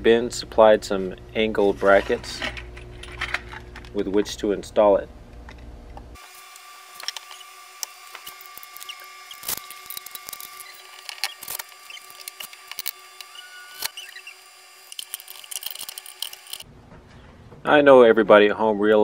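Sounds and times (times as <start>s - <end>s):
brief squeak: 13.2s - 14.4s.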